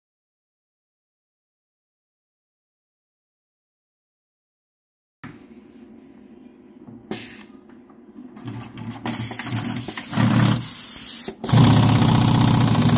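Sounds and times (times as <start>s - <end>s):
sewing machine stitching: 8.4s - 12.9s.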